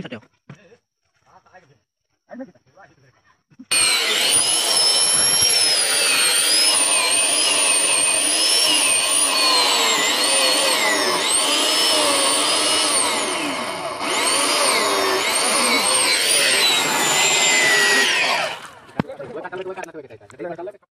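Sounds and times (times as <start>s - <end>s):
electric chainsaw cutting log: 3.7s - 19.0s.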